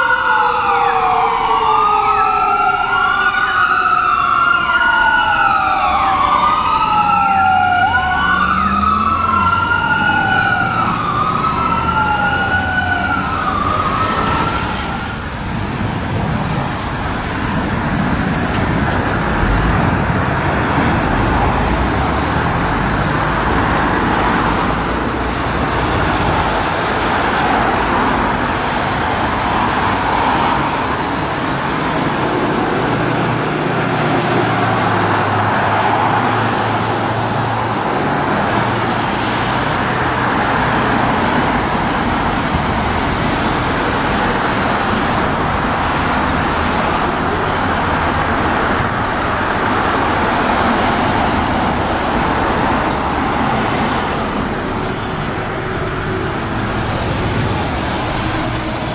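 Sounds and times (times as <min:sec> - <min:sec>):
fire truck siren wailing: 0:00.0 - 0:58.9
street traffic: 0:00.0 - 0:58.9
car passing: 0:03.7 - 0:15.6.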